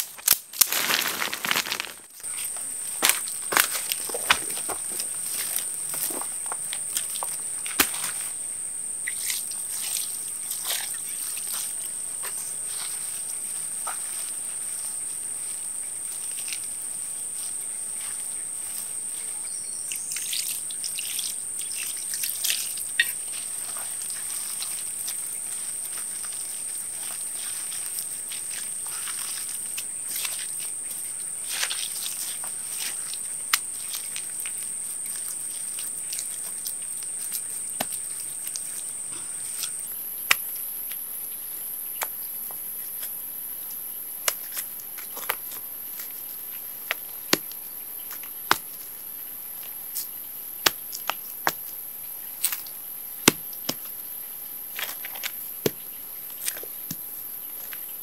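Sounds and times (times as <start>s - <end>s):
stones knocking together: 0.0s - 2.1s, 3.0s - 5.0s, 53.3s - 53.9s
hand scraping soil: 0.0s - 2.4s
insects droning: 0.0s - 58.0s.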